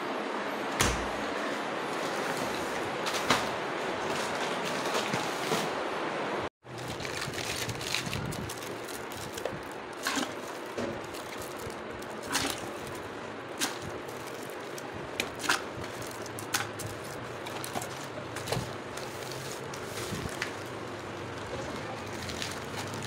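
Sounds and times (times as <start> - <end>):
plastic bag crinkling: 6.7 - 23.0.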